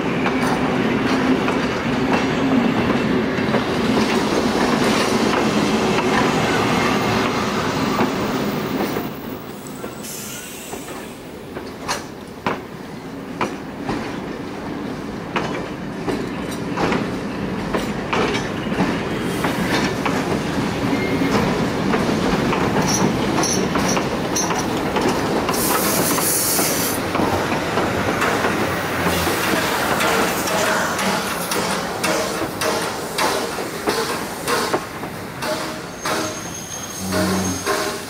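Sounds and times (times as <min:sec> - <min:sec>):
train wheels clicking over rail joints: 0:00.2 - 0:06.3, 0:09.8 - 0:12.7, 0:15.2 - 0:20.5, 0:21.2 - 0:38.0
steam hissing: 0:09.4 - 0:11.4, 0:25.5 - 0:27.1, 0:28.9 - 0:38.0
steam locomotive rolling: 0:15.2 - 0:38.0.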